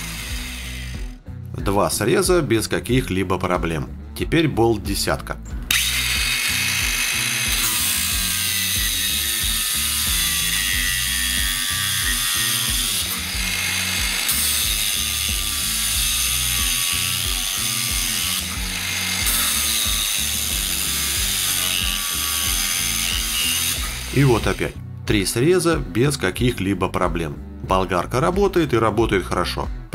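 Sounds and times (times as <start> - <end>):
angle grinder cutting metal bolt: 0.0 - 1.2, 5.7 - 24.8.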